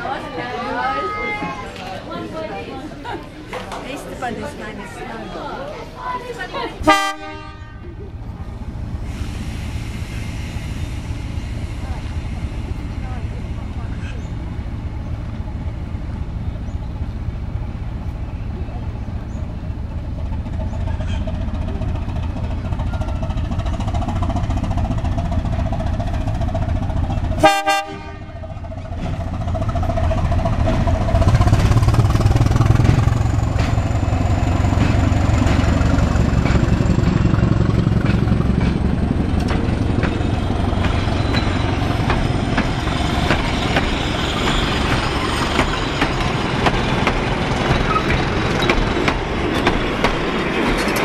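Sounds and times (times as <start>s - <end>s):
diesel locomotive rumble: 0.0s - 51.0s
train horn toot: 6.9s - 7.9s, 27.4s - 28.4s
wheels clicking on rails: 28.4s - 51.0s.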